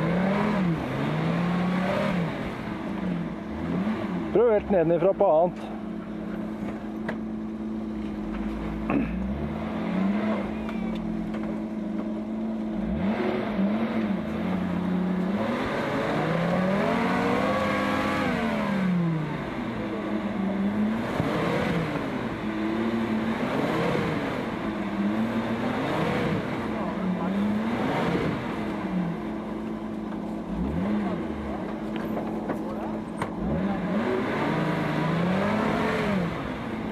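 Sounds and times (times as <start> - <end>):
off-road vehicle engine revving: 0.0 - 36.9.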